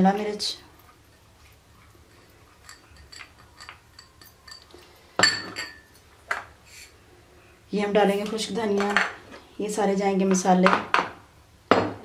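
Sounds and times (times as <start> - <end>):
dishes clinking: 2.2 - 6.5.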